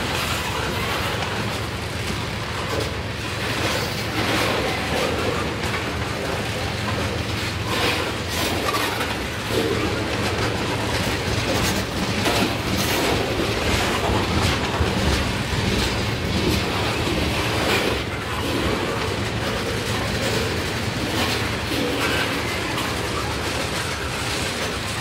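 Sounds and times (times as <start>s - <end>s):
train wheels rumbling on rail: 0.0s - 25.0s
wheels clickety-clack over rail joints: 0.0s - 25.0s.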